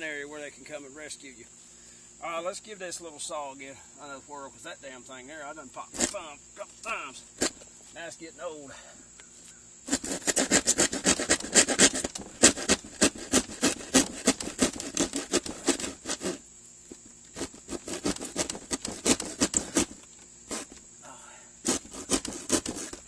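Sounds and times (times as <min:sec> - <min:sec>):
hand saw cutting plywood: 0:05.9 - 0:06.2, 0:09.9 - 0:16.4, 0:17.3 - 0:20.8, 0:21.6 - 0:23.0.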